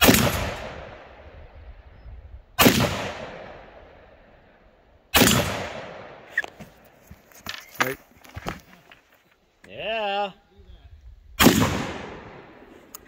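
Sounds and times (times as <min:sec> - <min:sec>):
rifle shots with echo: 0:00.0 - 0:01.4, 0:02.6 - 0:04.2, 0:05.1 - 0:06.3, 0:11.4 - 0:12.8.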